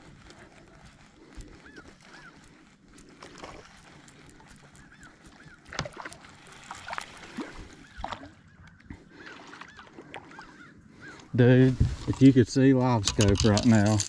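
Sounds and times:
water splashing: 4.4 - 8.4, 9.0 - 10.6.

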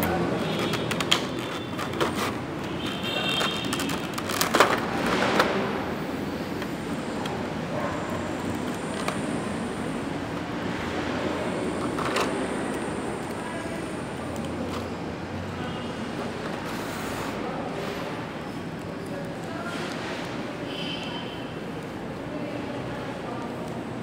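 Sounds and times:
plastic packaging crackling: 0.4 - 5.0.

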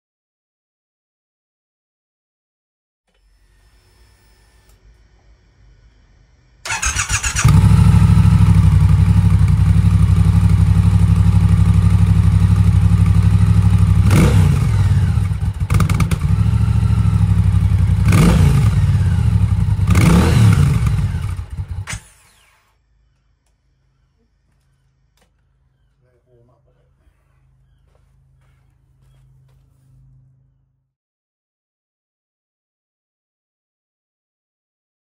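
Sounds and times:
motorcycle engine idling and revving: 6.6 - 22.5
motorcycle engine cranking: 6.7 - 8.8.

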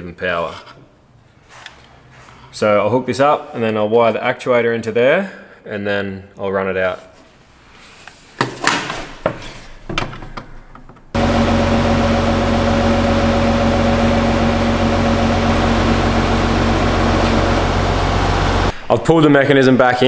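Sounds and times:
linear actuator motor whine: 11.2 - 18.7.

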